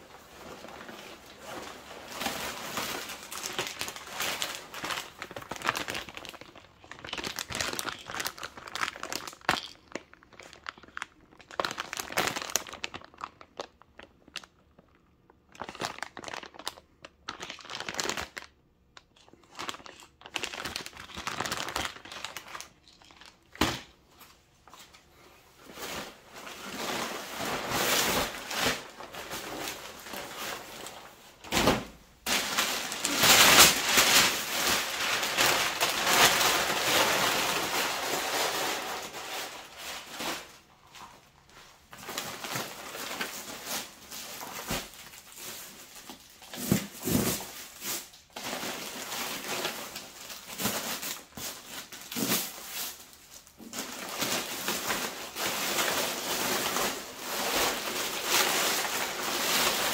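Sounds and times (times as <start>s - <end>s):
nylon bag rustling: 32.3s - 41.2s, 41.8s - 59.9s.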